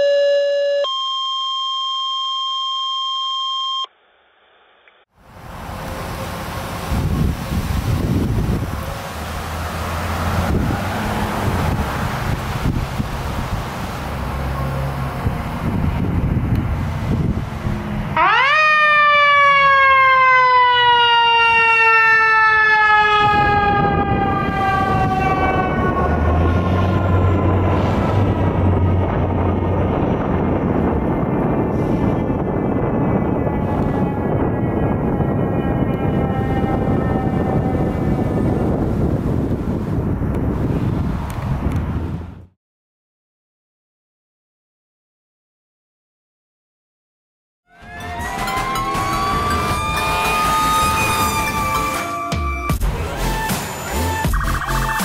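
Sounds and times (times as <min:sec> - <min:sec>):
two-tone alert tones: 0:00.0 - 0:03.9, 0:47.7 - 0:53.5, 0:54.1 - 0:55.0
wind: 0:04.6 - 0:42.6, 0:47.7 - 0:55.0
street noise: 0:04.7 - 0:42.5, 0:47.7 - 0:55.0
truck engine rumble: 0:05.2 - 0:18.5, 0:22.4 - 0:42.5, 0:47.8 - 0:55.0
fire truck siren wailing: 0:05.5 - 0:39.4, 0:47.7 - 0:55.0.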